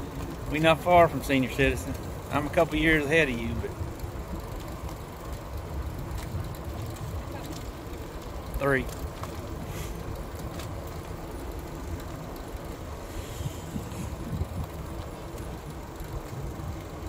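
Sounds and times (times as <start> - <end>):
bicycle tyres rolling: 0.0 - 17.0
faint ticks: 3.9 - 17.0
wind over microphone: 13.0 - 15.1.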